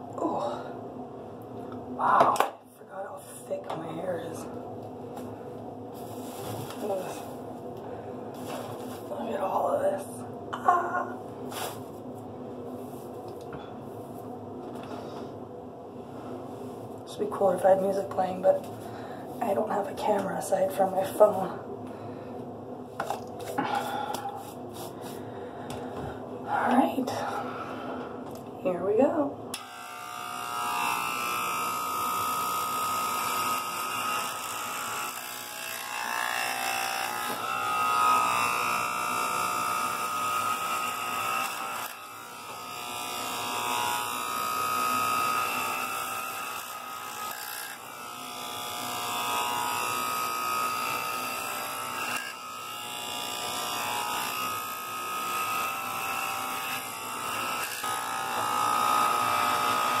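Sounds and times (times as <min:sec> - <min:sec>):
electric hair clippers buzzing: 0:29.5 - 1:00.0.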